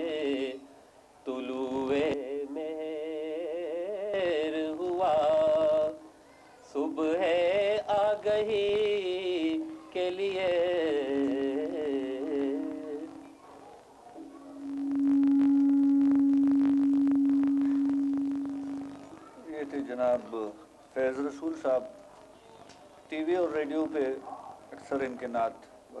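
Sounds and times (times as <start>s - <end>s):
man singing: 0.0s - 0.7s, 1.3s - 6.1s, 6.7s - 13.2s.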